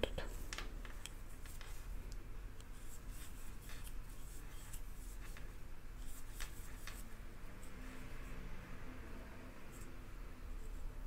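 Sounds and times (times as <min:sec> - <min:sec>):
crochet hook rubbing yarn: 0:02.8 - 0:08.4.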